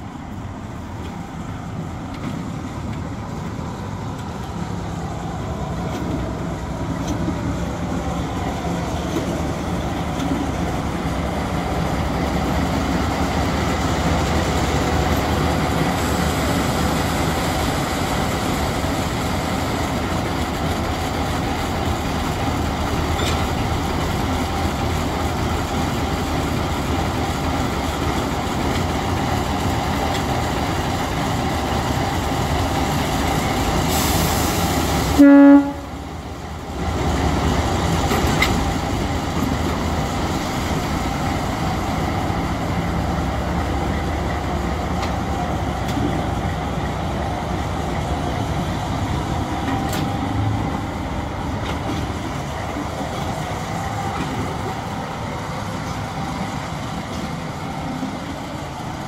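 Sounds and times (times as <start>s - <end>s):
diesel locomotive engine running: 0.0s - 59.0s
locomotive horn toot: 35.2s - 36.0s.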